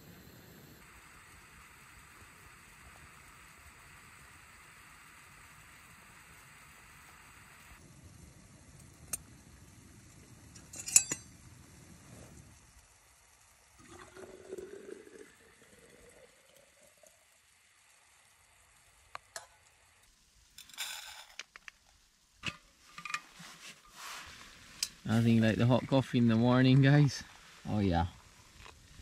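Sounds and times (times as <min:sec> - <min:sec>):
gas stove burner rumble: 0:00.0 - 0:13.8
metal pot clink: 0:10.6 - 0:11.4
water pouring into flask: 0:13.7 - 0:17.4
rustle: 0:20.8 - 0:29.0.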